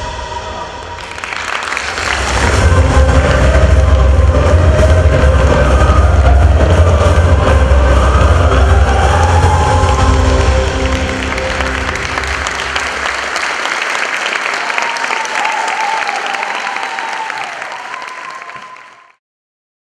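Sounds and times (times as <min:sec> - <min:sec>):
dance music: 0:00.0 - 0:17.8
audience applauding: 0:00.8 - 0:07.2, 0:07.9 - 0:19.2.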